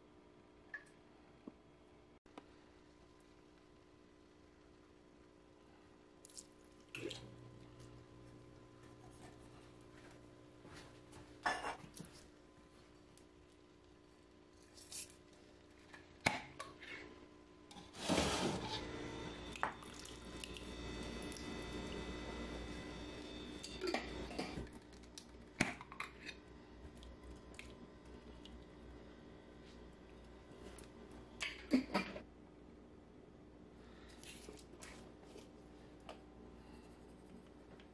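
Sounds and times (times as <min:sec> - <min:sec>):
faint steady hum: 0:00.0 - 0:37.9
soft scrapes: 0:17.8 - 0:18.9.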